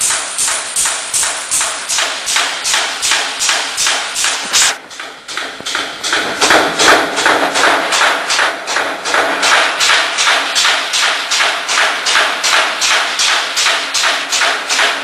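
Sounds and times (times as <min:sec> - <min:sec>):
punching press clacking: 0:00.0 - 0:15.0.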